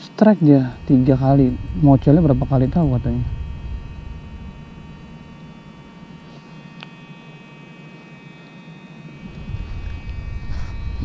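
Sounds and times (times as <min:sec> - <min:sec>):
faint steady high-pitched hum: 0:00.0 - 0:11.0
low rumble: 0:00.7 - 0:07.2, 0:09.2 - 0:11.0.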